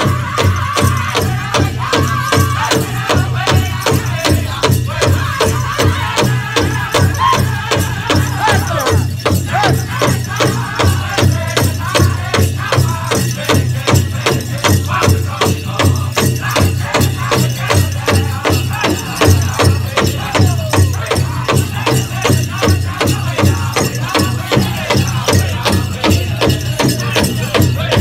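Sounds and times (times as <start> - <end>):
large drum beating: 0.0 - 28.0
men singing in high voices: 0.0 - 28.0.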